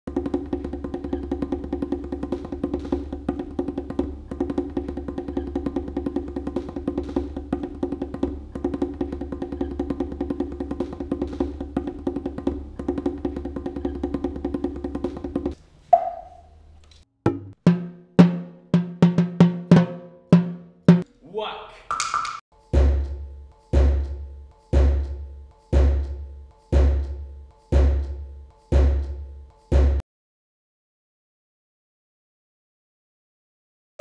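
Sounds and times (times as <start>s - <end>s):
wood-block-like percussion ticking: 0.1s - 16.1s, 21.9s - 30.0s
sharp drum hits: 17.3s - 21.0s.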